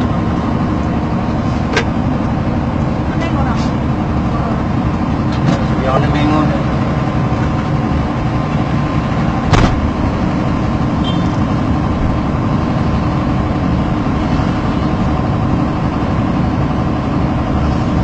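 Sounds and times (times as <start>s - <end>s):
vehicle engine and road rumble: 0.0s - 18.0s
sharp knock: 9.5s - 9.9s.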